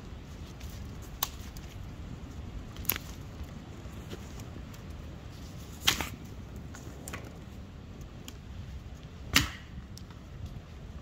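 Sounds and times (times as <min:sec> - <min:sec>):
twigs crackling: 0:00.0 - 0:09.2
dead branches snapping: 0:01.1 - 0:01.8, 0:02.7 - 0:03.2.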